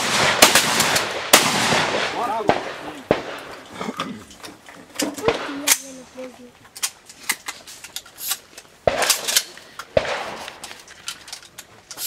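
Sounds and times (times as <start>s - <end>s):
shotgun shots with echo: 0.0s - 3.5s, 8.8s - 10.6s.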